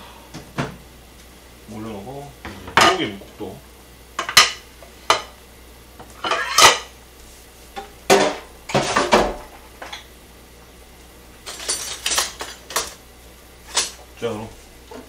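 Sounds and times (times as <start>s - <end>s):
dishes clattering on stone countertop: 2.4s - 3.1s, 4.2s - 5.3s, 6.0s - 6.9s.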